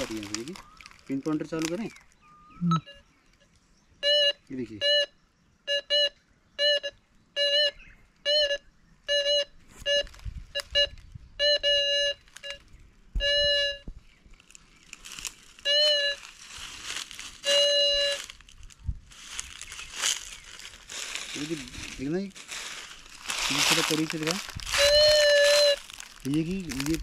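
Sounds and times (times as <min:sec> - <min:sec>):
dry leaves rustling and crunching: 0:00.0 - 0:02.2, 0:14.3 - 0:27.0
metal detector beeping: 0:02.3 - 0:03.1, 0:04.0 - 0:13.9, 0:15.6 - 0:18.4, 0:23.2 - 0:27.0.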